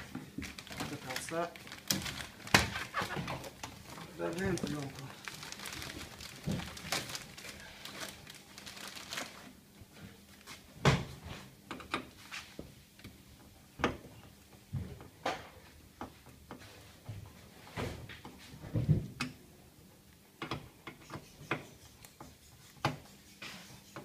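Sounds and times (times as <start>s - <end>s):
plastic film crinkling and tearing: 0.4s - 9.6s.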